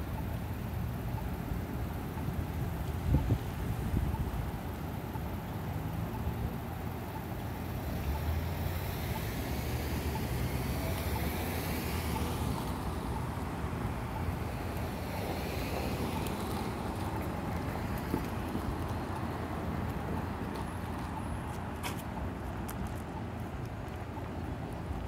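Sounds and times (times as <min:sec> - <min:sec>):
passing street traffic: 0:00.0 - 0:25.0
car passing: 0:07.7 - 0:21.5.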